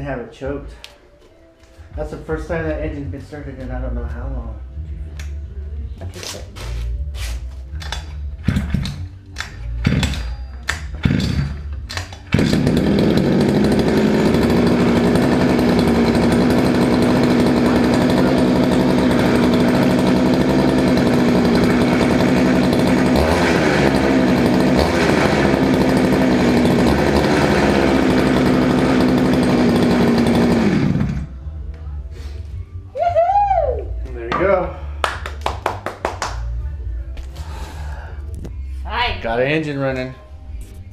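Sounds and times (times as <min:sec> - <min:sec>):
pull starter cord: 0:07.7 - 0:31.3
two-stroke engine running: 0:08.4 - 0:09.1, 0:09.8 - 0:10.3, 0:10.9 - 0:31.4.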